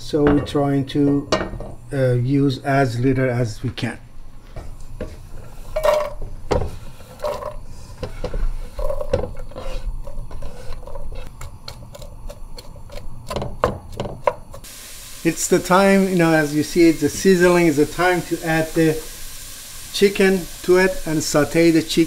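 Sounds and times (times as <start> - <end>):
wooden spoon stirring: 5.0 - 13.0
onion sizzling and popping: 11.2 - 22.0.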